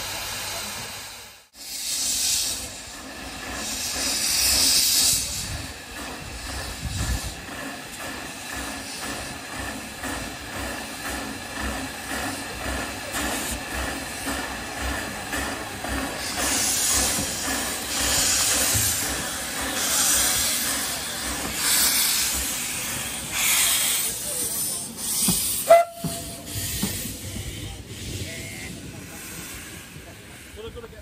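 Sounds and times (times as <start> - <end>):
steam engine working: 0.0 - 31.0
steam hissing bursts: 0.0 - 31.0.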